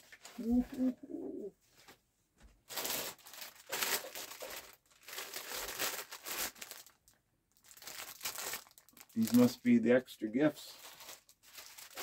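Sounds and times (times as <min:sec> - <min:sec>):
packaging crinkling: 0:02.7 - 0:09.8, 0:10.7 - 0:12.0.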